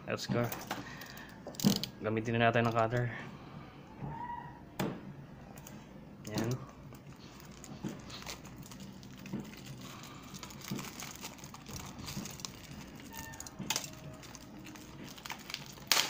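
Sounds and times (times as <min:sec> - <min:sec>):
plastic shrink wrap crinkling: 0:06.3 - 0:16.0.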